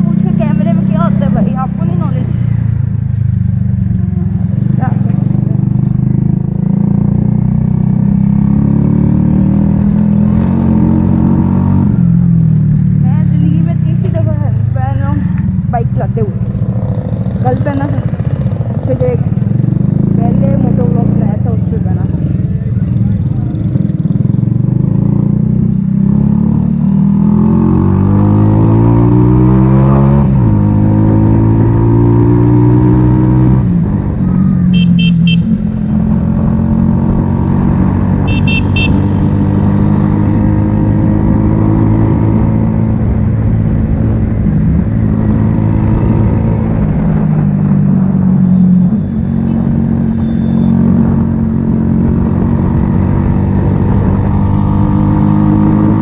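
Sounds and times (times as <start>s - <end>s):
motorcycle engine revving: 0.0s - 56.0s
horn beeps: 34.3s - 35.6s, 38.2s - 39.2s, 48.9s - 51.0s.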